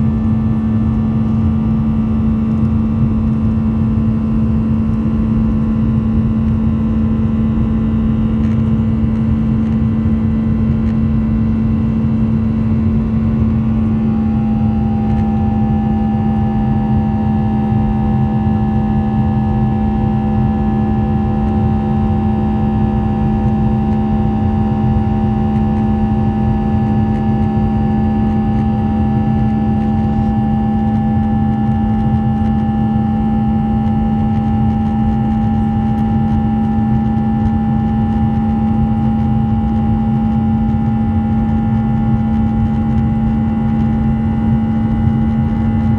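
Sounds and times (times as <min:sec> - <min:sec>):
high engine whine: 0:00.0 - 0:45.9
jet engine cabin drone: 0:00.0 - 0:45.9.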